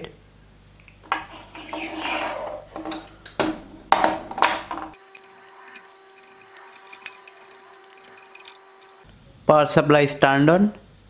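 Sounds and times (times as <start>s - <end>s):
plastic fittings clicking and clattering: 1.0s - 9.0s.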